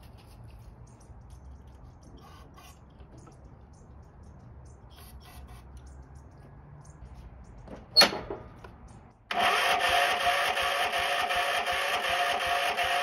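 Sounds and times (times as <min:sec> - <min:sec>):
starter cranking engine: 0:09.3 - 0:13.0.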